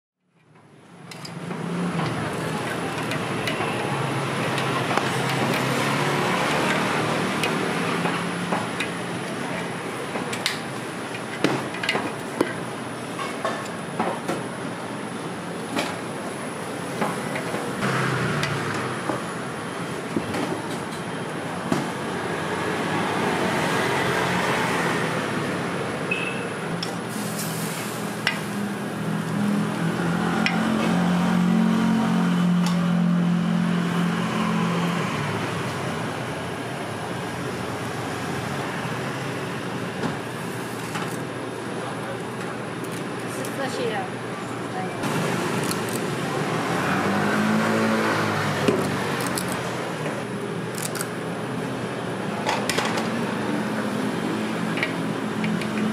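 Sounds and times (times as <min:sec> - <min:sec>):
street traffic noise: 0:00.2 - 0:55.9.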